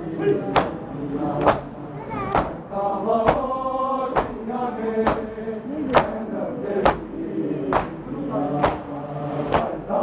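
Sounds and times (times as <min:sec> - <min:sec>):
men chanting a lament in unison: 0:00.0 - 0:10.0
hands slapping bare chests: 0:04.2 - 0:04.4, 0:07.7 - 0:08.0, 0:08.6 - 0:08.8.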